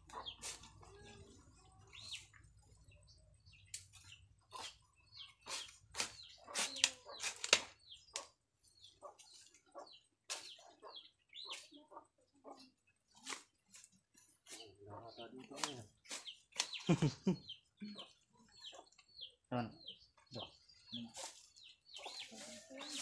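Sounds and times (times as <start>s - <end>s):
blade chopping dry soil: 5.4s - 7.7s.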